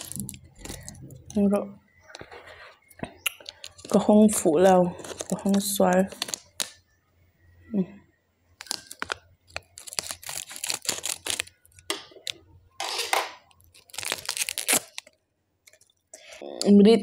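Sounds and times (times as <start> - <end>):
foil packet crinkling: 0.0 - 1.4, 3.4 - 6.8, 8.6 - 12.4, 13.5 - 16.0.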